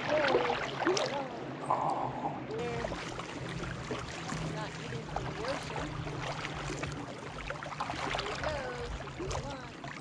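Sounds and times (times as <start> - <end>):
small splashes and drips: 0.0 - 1.3, 2.6 - 10.0
water sloshing around paddle: 0.0 - 1.6, 2.3 - 10.0.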